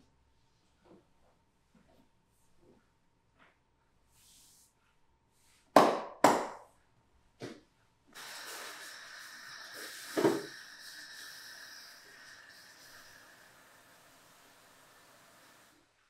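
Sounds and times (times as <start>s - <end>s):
steady hiss with faint whine: 8.1s - 16.0s.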